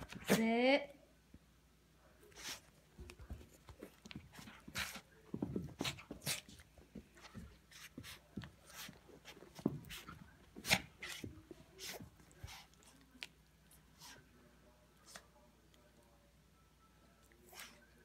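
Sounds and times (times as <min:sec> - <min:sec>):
dog breathing and play noises: 0:02.0 - 0:15.9, 0:17.1 - 0:18.0.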